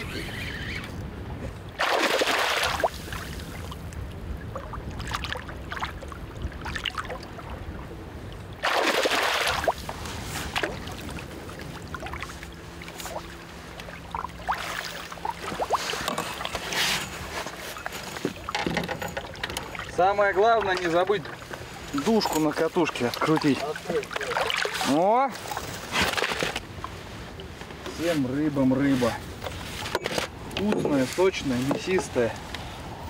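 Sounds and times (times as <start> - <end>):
water lapping against hull: 0.0 - 27.8
fish splashing at water surface: 1.7 - 3.8, 8.6 - 17.0.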